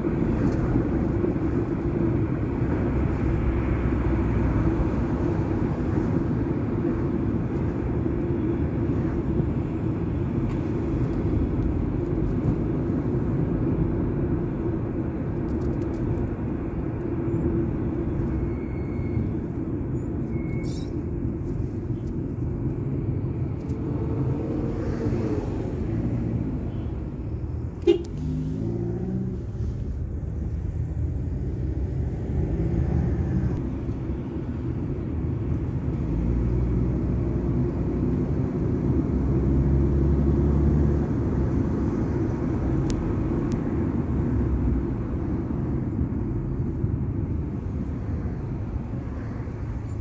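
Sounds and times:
car engine and road rumble: 0.0 - 50.0.

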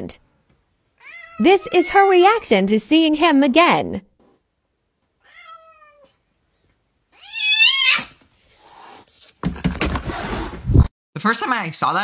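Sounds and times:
cat meowing: 1.0 - 1.9, 5.2 - 6.2, 7.1 - 8.2.

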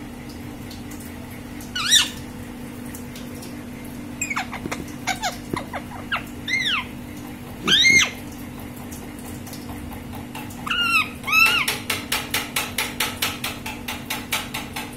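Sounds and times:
parakeet screeching calls: 1.8 - 2.2, 4.2 - 7.0, 7.6 - 8.2, 10.6 - 11.8.

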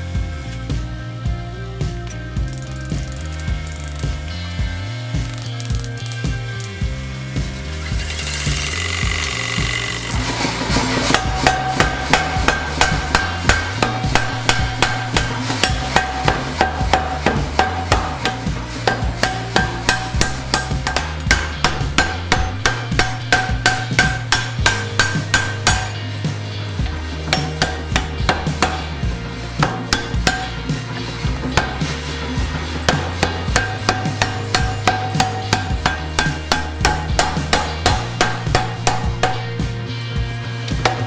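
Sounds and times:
power hammer running hum: 6.8 - 22.8
power hammer striking hot steel: 7.1 - 26.1, 26.8 - 39.7, 40.8 - 41.0.

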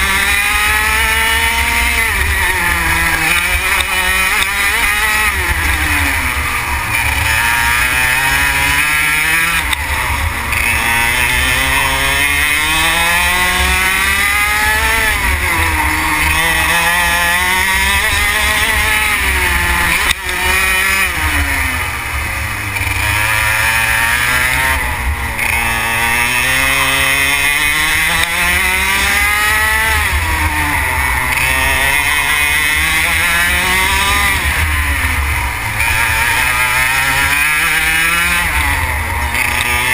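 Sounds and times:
kart engine revving: 0.0 - 39.9.

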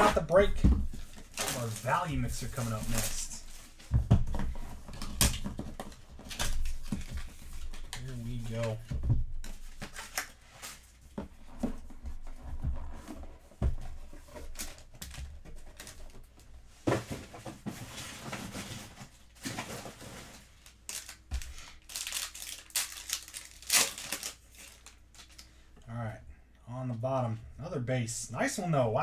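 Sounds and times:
packaging tearing and crinkling: 1.2 - 3.4, 20.4 - 25.4
trading cards rustling: 20.5 - 25.5.

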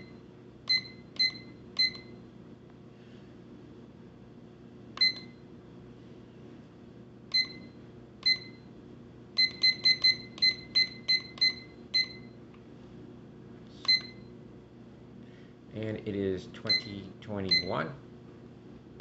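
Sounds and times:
alarm clock short high beeps: 0.0 - 2.2, 5.0 - 5.4, 7.3 - 8.6, 9.4 - 12.3, 13.9 - 14.3, 16.7 - 17.8.

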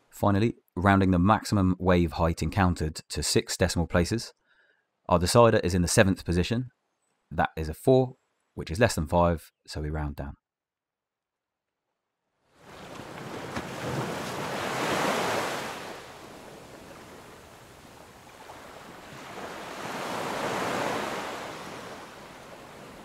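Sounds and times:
ocean waves washing in: 12.6 - 23.0.

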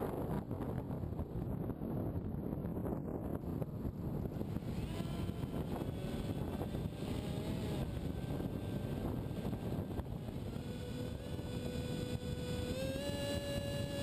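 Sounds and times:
electric motor propeller whine: 0.0 - 14.0.

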